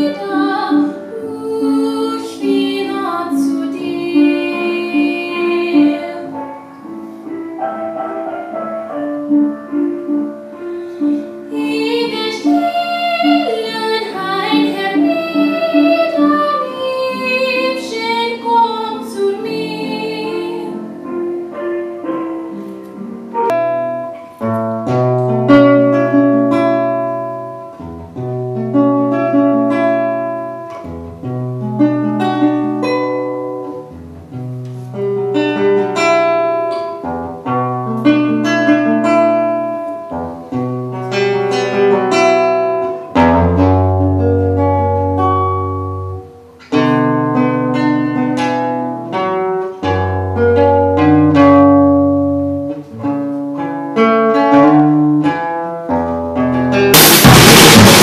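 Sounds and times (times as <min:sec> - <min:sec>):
plucked melody: 0:00.0 - 0:58.0
strummed guitar chords: 0:56.1 - 0:58.0.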